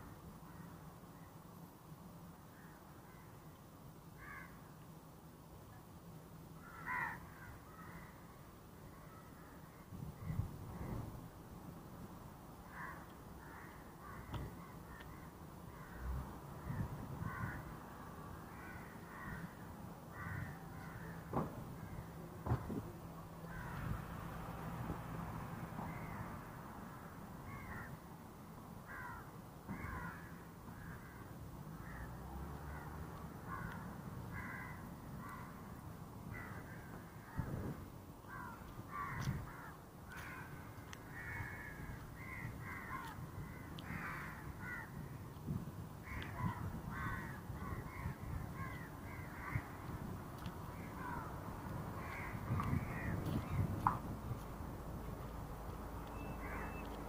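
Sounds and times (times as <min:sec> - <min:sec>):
birds calling: 0:46.1 - 0:51.4, 0:56.0 - 0:57.0.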